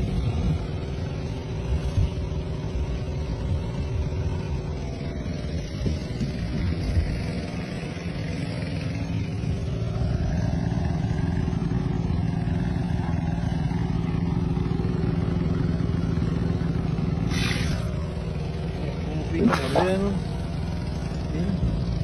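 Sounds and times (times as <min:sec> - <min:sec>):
boat engine droning: 0:00.0 - 0:22.0
brief hiss: 0:17.3 - 0:17.9.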